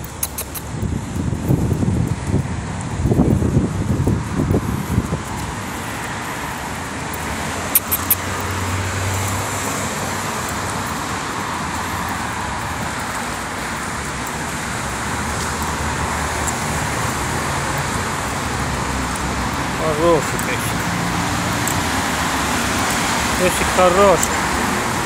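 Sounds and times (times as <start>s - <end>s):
sharp clicks: 0.0s - 1.2s, 7.1s - 8.6s
road traffic noise: 0.0s - 25.0s.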